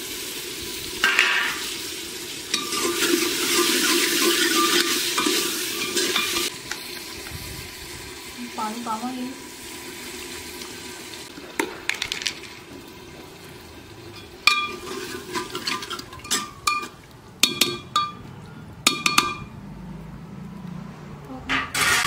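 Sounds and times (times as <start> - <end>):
water pouring into pot: 0.0 - 18.1
ladle stirring and clinking on pot: 2.5 - 6.5, 14.1 - 19.5.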